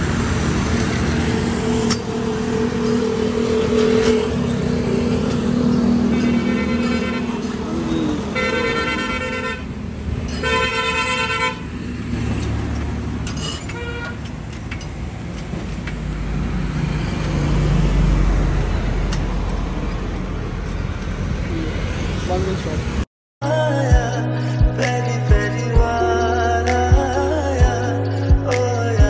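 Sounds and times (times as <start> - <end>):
vehicle horn honking: 6.1 - 9.7, 10.4 - 11.6, 13.8 - 14.2.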